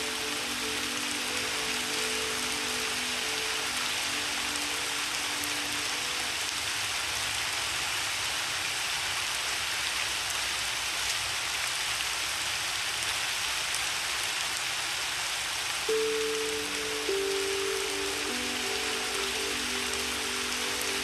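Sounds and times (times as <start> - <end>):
piano notes: 0.0 - 6.4, 15.9 - 21.0
steady rain falling: 0.0 - 21.0.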